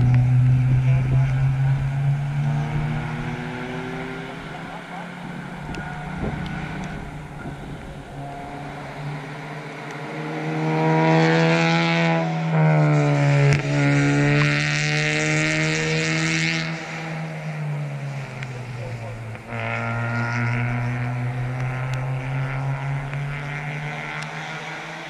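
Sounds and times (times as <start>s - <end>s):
distant engine hum: 0.0s - 25.0s
race car passing by: 0.0s - 25.0s.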